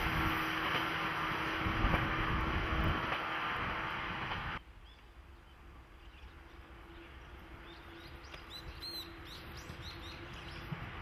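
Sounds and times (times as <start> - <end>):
small birds chirping: 4.8 - 10.8.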